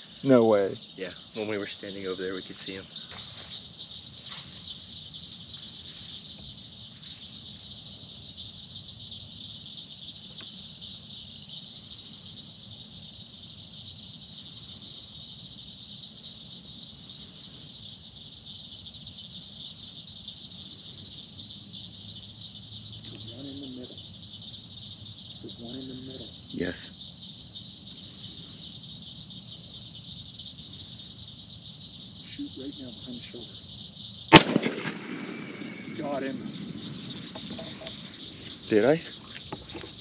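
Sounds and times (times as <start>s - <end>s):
crickets trilling: 0.0s - 40.0s.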